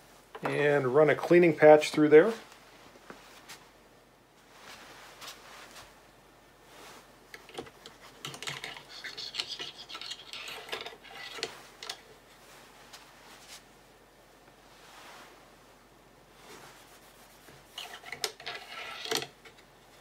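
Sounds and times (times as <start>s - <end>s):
scratchy rubbing in metal tube: 7.8s - 12.1s, 16.5s - 19.4s.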